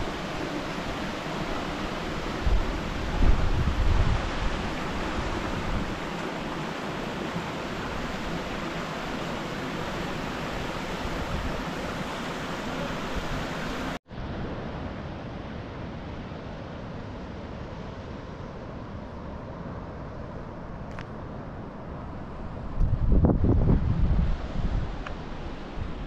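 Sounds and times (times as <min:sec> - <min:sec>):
rushing wind: 0:00.0 - 0:26.0
wind buffeting microphone: 0:00.8 - 0:06.2, 0:22.4 - 0:26.0.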